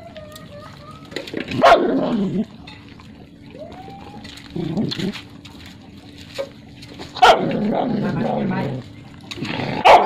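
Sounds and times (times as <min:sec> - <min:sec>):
puppies whimpering: 0:03.3 - 0:05.2.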